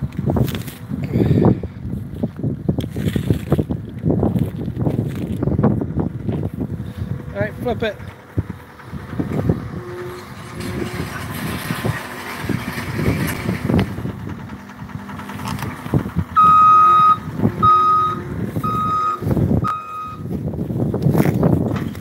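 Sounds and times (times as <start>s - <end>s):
low rumble of loader: 0.0s - 22.0s
wind on microphone: 0.0s - 22.0s
backup alarm beeping: 16.4s - 20.3s.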